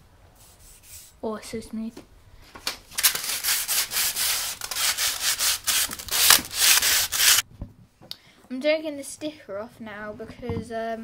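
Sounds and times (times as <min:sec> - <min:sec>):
sandpaper rubbing on metal: 0:03.0 - 0:07.4.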